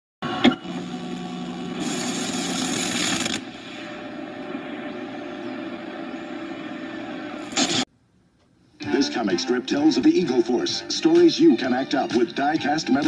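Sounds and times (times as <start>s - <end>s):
vcr mechanical whir and hiss: 0.2s - 7.9s.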